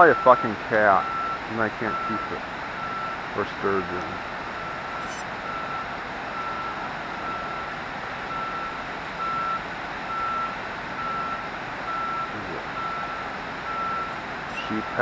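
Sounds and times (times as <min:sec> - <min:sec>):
electronic beeps: 0:04.6 - 0:06.8, 0:13.8 - 0:14.9.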